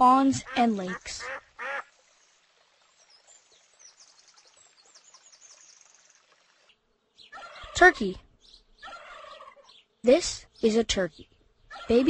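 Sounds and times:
duck quacking: 0.4s - 1.9s.

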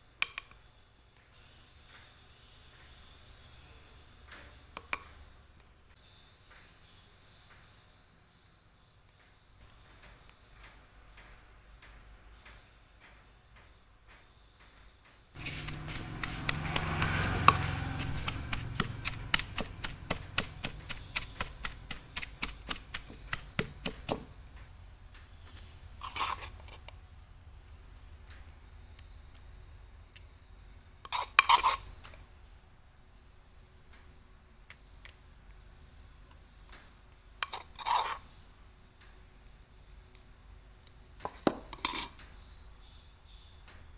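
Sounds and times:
metal spoon scooping paste: 15.4s - 24.3s, 25.7s - 27.0s, 31.0s - 32.3s, 37.3s - 38.5s, 41.2s - 42.2s
wooden pestle pounding in mortar: 15.4s - 24.4s.

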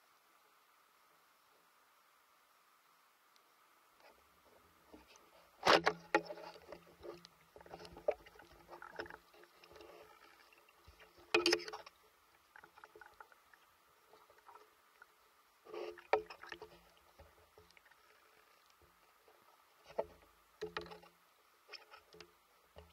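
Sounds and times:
muffled water sloshing underwater: 2.8s - 22.9s
small knocks: 19.9s - 22.9s.

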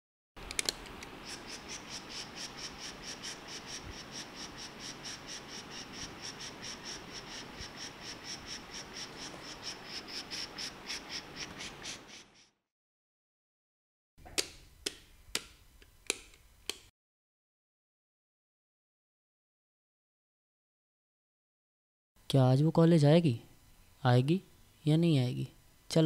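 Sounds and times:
crickets chirping: 1.2s - 12.0s.

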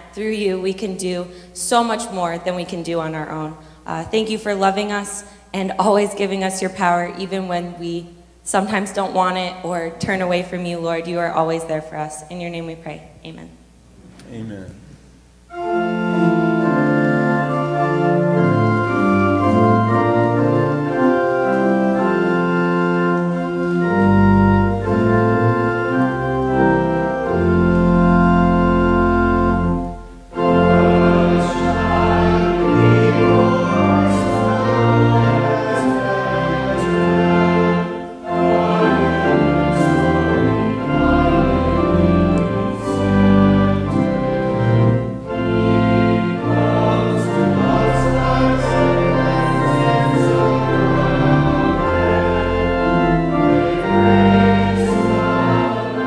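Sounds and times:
organ chords: 0.0s - 56.0s
man and woman singing hymn: 30.3s - 56.0s.

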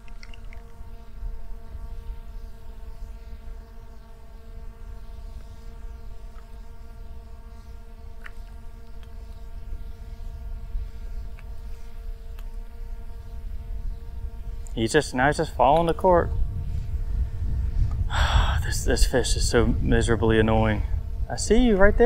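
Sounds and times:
faint ticks: 0.0s - 0.8s, 6.2s - 6.7s, 8.1s - 9.5s, 11.2s - 12.8s, 14.6s - 14.8s
electric hum: 0.0s - 22.0s
wind on microphone: 8.2s - 22.0s.

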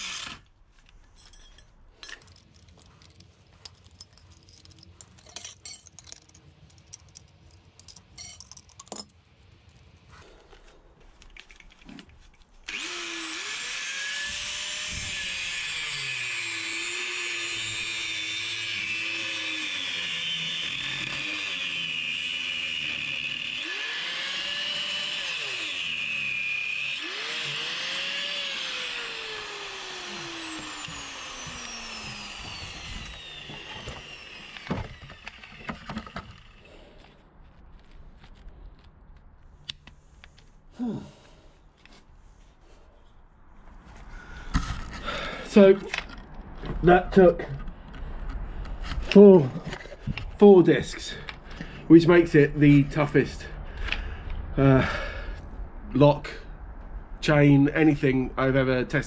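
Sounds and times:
angle grinder cutting metal: 0.0s - 0.5s, 12.7s - 36.8s.

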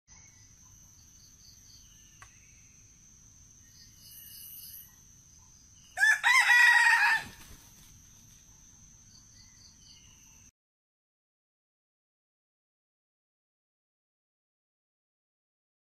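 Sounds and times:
rooster crowing: 6.0s - 7.6s.

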